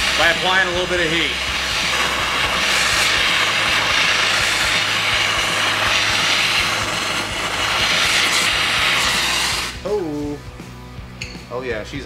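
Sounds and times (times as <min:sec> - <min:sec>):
gas torch hissing: 0:00.0 - 0:10.4.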